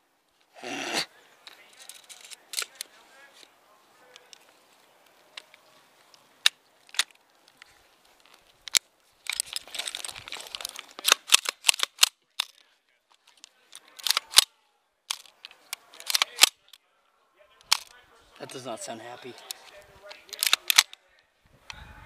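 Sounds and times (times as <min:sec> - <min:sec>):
airsoft rifle metallic clicks: 0:05.3 - 0:12.6, 0:13.3 - 0:14.5, 0:15.1 - 0:16.8, 0:17.6 - 0:18.6, 0:19.4 - 0:21.0.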